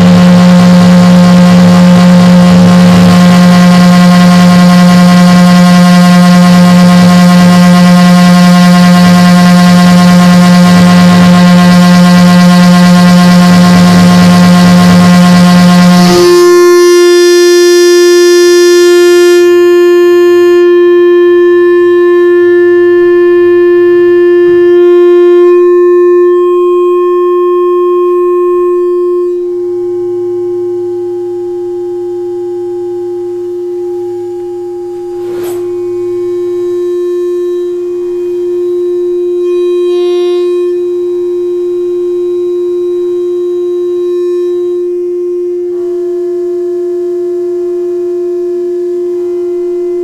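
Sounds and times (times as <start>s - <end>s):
synthesizer drone: 0.0s - 26.9s, 33.5s - 41.4s
low hum: 0.0s - 42.2s
higher synth tones: 34.4s - 40.7s.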